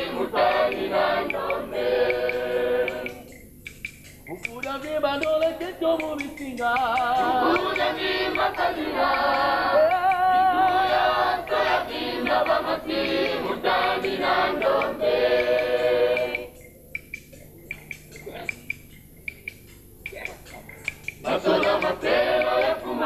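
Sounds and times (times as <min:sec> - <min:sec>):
choir singing: 0:00.0 - 0:03.4, 0:07.2 - 0:16.6, 0:21.2 - 0:23.0.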